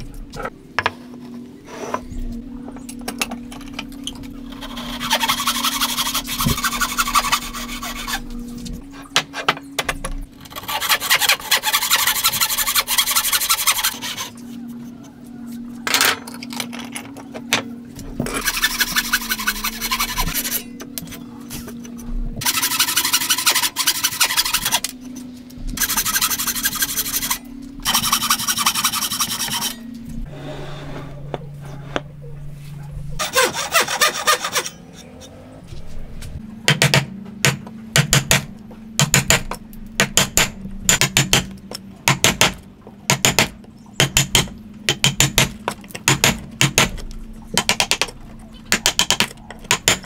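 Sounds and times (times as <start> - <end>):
hand saw cutting wood: 4.6 - 8.2, 10.5 - 14.3, 18.3 - 20.6, 22.4 - 24.9, 25.8 - 29.8, 33.2 - 34.8.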